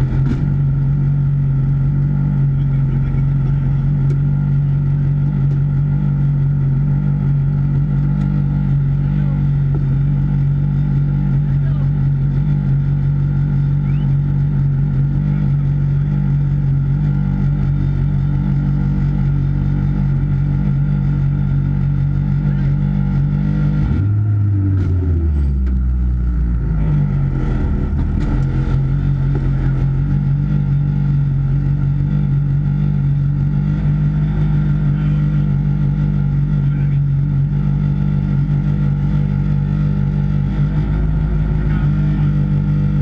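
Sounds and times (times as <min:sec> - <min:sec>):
car engine idling: 0:00.0 - 0:43.0.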